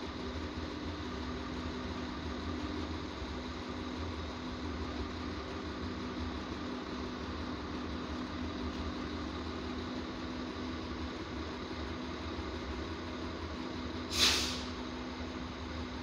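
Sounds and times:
diesel railcar idling: 0.0s - 16.0s
air release hiss: 14.1s - 14.8s.

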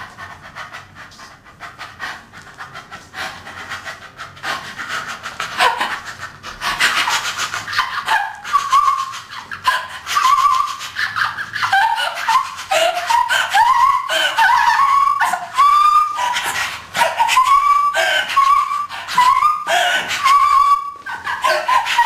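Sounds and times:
girl whimpering cries: 11.8s - 15.6s, 17.9s - 20.4s, 21.0s - 22.0s.

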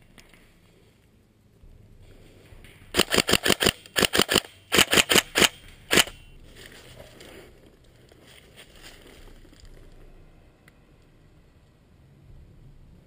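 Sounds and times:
airsoft gun firing sharp snaps: 3.0s - 6.2s.

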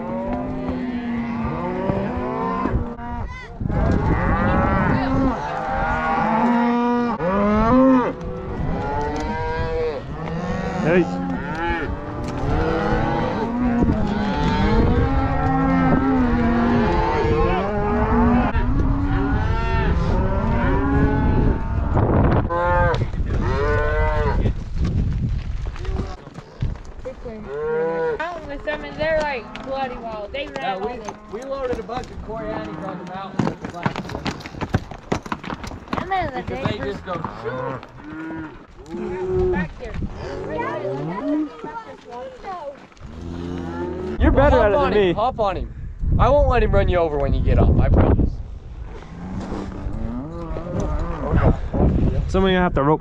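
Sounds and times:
cattle mooing: 0.0s - 24.4s, 36.8s - 41.9s, 43.0s - 44.8s, 49.0s - 51.6s.

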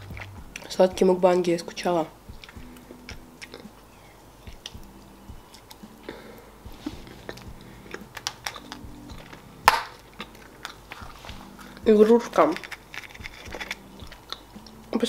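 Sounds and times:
chewing chocolate: 2.4s - 6.3s, 6.9s - 15.0s
sharp plastic crackle: 7.2s - 14.9s
plastic capsule clicking and crinkling: 7.2s - 15.0s.

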